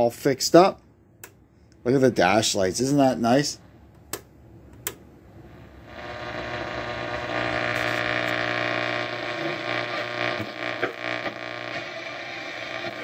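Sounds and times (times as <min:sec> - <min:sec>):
radio tuning clicks: 0:04.8 - 0:13.0
car radio electrical hum and hiss: 0:05.4 - 0:13.0.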